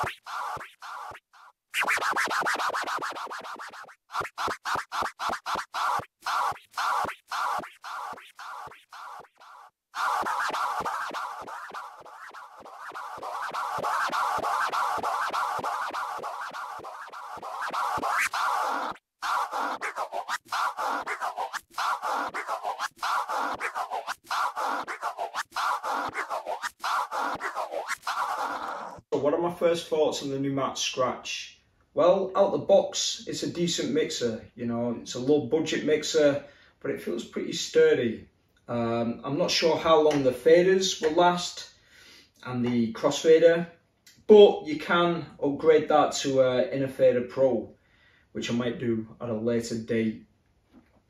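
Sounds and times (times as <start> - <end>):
vinyl scratching: 0.0 - 29.1.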